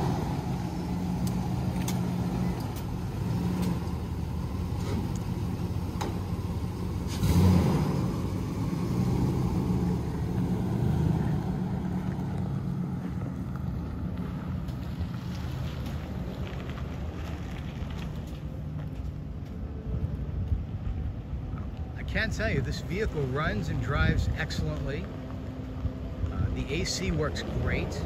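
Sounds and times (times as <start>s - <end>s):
truck engine pulling away: 0.0s - 20.4s.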